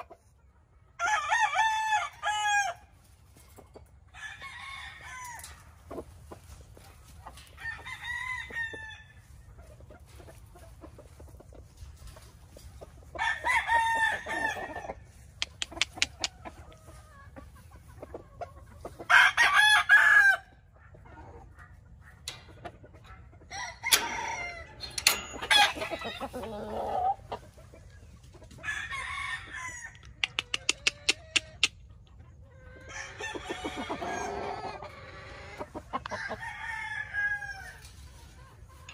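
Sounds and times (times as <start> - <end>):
roosters crowing: 1.0 - 3.0, 4.0 - 5.8, 7.4 - 9.3, 13.0 - 15.2, 18.9 - 20.6, 22.3 - 27.4, 28.5 - 31.4, 32.5 - 38.1
sharp clicks: 15.4 - 16.3.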